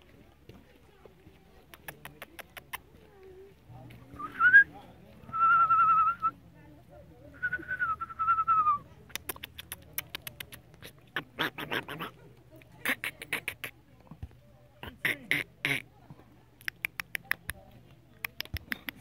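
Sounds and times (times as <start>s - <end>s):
short sharp clicks and smacks: 9.1s - 10.9s, 16.6s - 17.6s, 18.2s - 19.0s.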